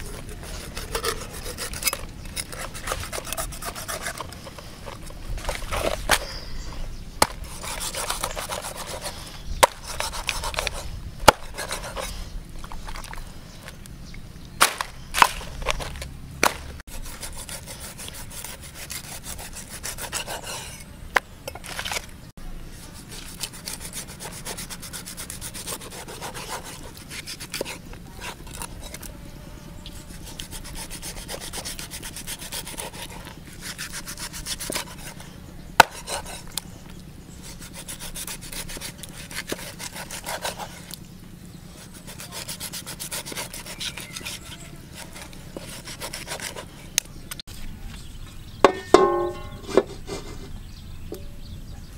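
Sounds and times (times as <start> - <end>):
cleaver scraping through flesh: 0.0 - 6.4, 7.2 - 13.2, 16.9 - 20.9, 22.9 - 29.1, 30.0 - 36.7, 37.4 - 41.0, 41.8 - 46.8.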